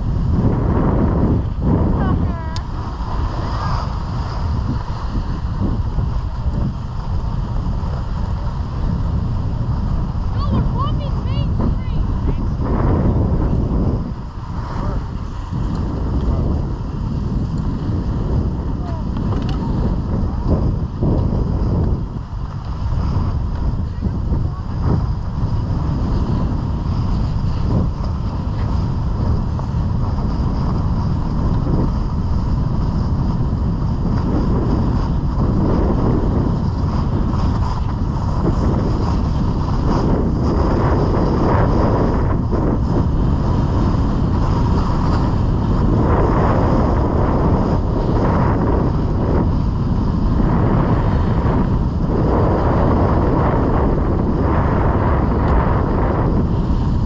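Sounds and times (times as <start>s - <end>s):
wind buffeting microphone: 0.0s - 57.0s
ski edges scraping snow: 1.8s - 6.7s.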